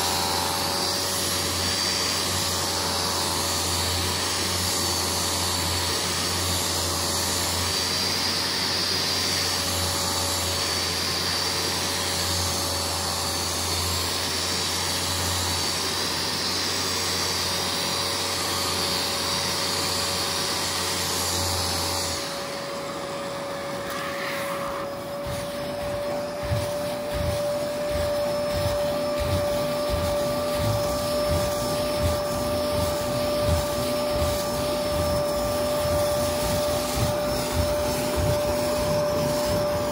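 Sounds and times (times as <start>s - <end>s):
carpet cleaner vacuum motor: 0.0s - 39.9s
low rhythmic thudding: 25.2s - 39.8s.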